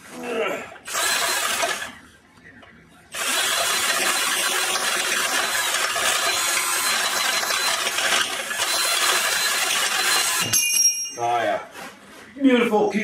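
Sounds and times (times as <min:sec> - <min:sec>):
cordless drill cutting steel: 0:00.9 - 0:01.9, 0:03.2 - 0:10.6.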